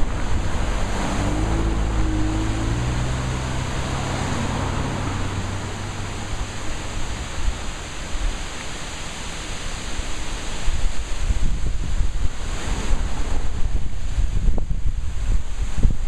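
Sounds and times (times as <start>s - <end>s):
car passing: 0.0s - 10.5s, 12.4s - 14.4s
wind buffeting microphone: 0.0s - 16.0s
wind rushing through trees: 0.0s - 16.0s.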